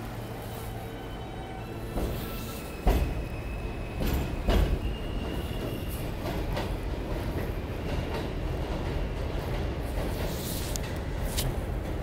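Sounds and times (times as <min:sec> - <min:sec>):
subway train rumble: 0:00.0 - 0:12.0.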